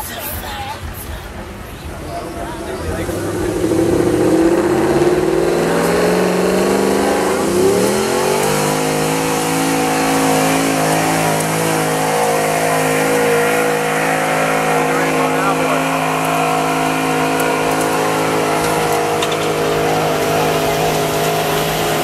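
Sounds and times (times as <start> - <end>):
truck engine running hard: 0.0 - 22.0.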